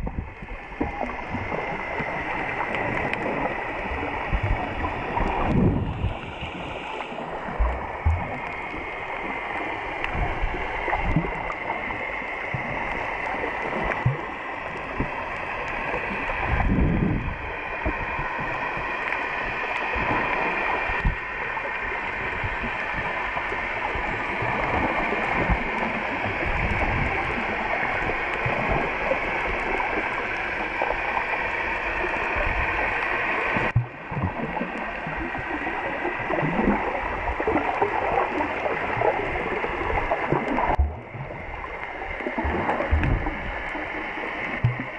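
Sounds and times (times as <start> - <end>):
underwater water rush and gurgling: 0.0 - 44.9
low underwater thumps: 7.5 - 8.4, 40.5 - 41.7, 42.3 - 43.6, 44.6 - 44.9.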